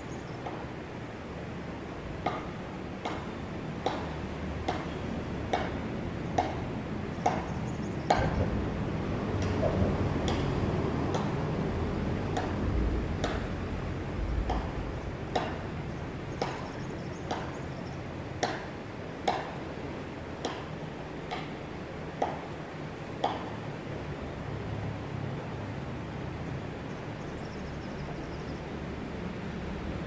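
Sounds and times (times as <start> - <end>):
steady low rumble: 8.1 - 17.1.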